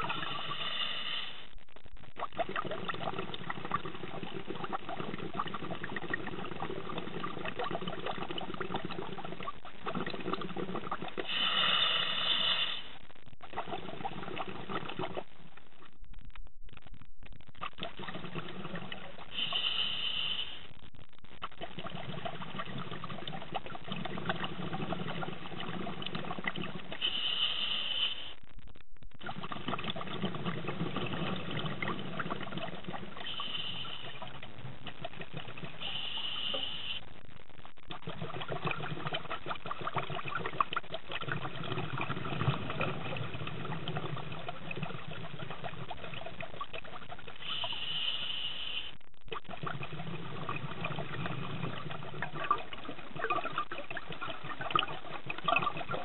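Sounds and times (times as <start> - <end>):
exhaust bubbles bubbling: 0.0 - 1.4, 2.0 - 15.9, 17.5 - 20.0, 20.8 - 27.4, 29.1 - 48.0, 49.2 - 56.0
regulator inhalation hiss: 0.1 - 1.4, 11.3 - 13.0, 19.3 - 20.7, 27.0 - 28.4, 33.3 - 34.2, 35.8 - 37.0, 47.4 - 49.0.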